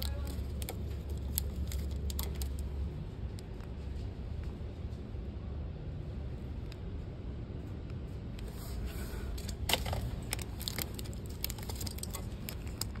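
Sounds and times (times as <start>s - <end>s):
packaging crinkling: 0.0s - 2.7s, 9.5s - 13.0s
steady low hum: 0.0s - 13.0s.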